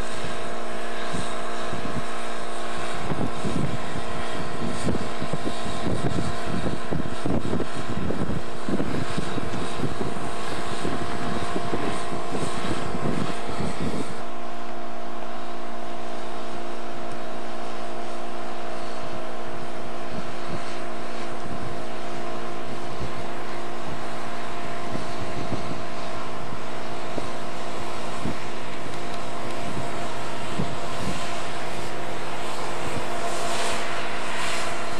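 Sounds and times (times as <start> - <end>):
diesel engines droning: 0.0 - 34.9.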